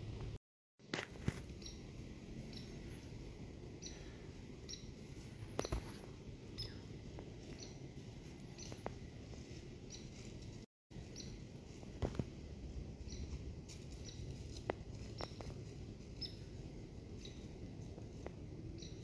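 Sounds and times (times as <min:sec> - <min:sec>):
small animal chip calls: 0:01.5 - 0:01.9, 0:02.5 - 0:03.1, 0:03.8 - 0:05.0, 0:07.5 - 0:07.8, 0:08.5 - 0:08.9, 0:11.1 - 0:11.4, 0:13.0 - 0:14.3, 0:18.8 - 0:19.0.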